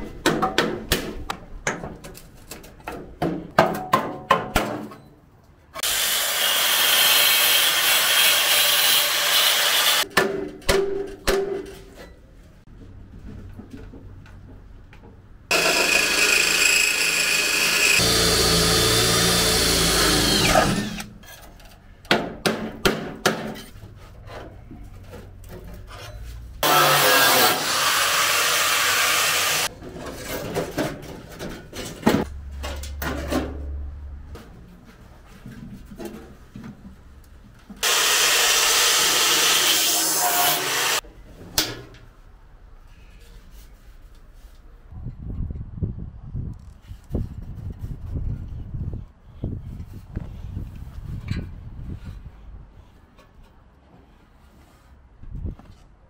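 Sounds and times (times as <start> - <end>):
power tool running: 5.8 - 10.0, 15.5 - 21.1, 26.6 - 29.7, 37.8 - 41.0.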